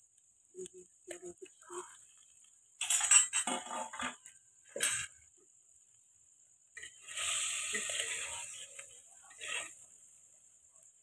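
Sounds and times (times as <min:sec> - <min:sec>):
food sizzling: 0:00.0 - 0:11.0
metal spatula scraping clay pot: 0:06.8 - 0:09.9.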